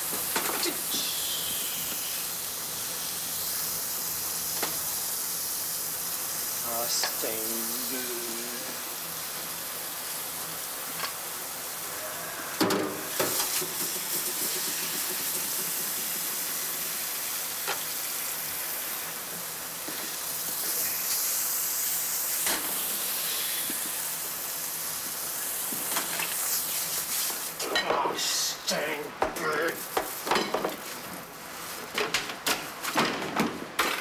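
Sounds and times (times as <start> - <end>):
steady hiss: 0.0 - 31.9
pots and pans clattering in sink: 12.6 - 16.1, 30.0 - 30.8.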